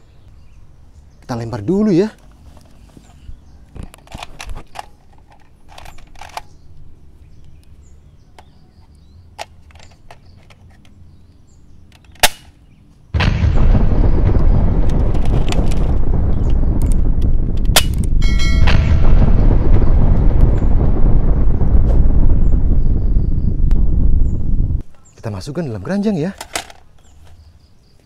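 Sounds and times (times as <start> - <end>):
explosion sound effect: 13.2 - 24.8
toy gun plastic clicks: 26.4 - 27.4.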